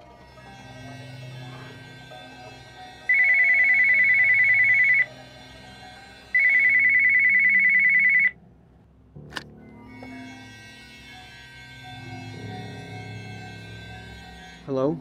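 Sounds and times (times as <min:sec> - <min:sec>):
telephone ringing: 0:02.5 - 0:08.4.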